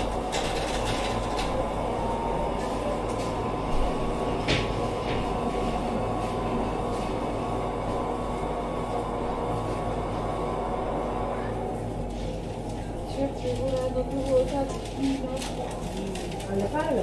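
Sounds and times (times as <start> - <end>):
low rumbling hum: 0.0 - 17.0.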